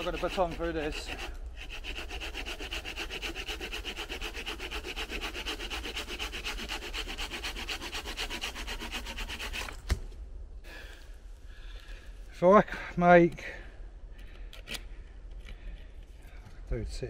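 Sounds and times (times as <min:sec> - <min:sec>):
hand saw cutting wood: 0:00.0 - 0:09.8.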